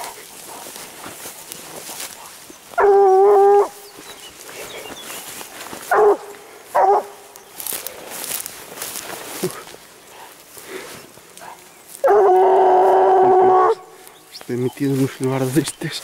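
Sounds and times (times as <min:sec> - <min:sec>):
rustling through tall grass: 0:00.0 - 0:16.0
hound baying: 0:02.0 - 0:04.1, 0:05.8 - 0:07.4, 0:11.4 - 0:14.1.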